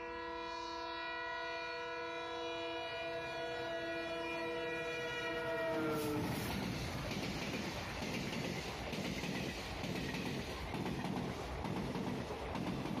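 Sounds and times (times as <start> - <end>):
locomotive horn blast: 0.0 - 6.5
train rumbling past: 2.3 - 13.0.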